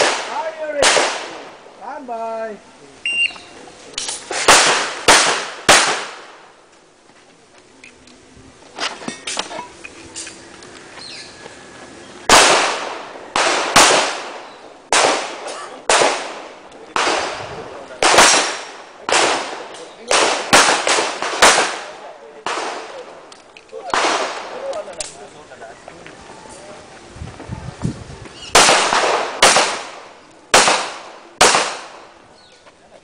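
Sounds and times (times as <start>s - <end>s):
pistol shots: 0.0s - 1.5s, 4.0s - 6.4s, 12.3s - 23.1s, 23.9s - 24.9s, 28.5s - 32.1s.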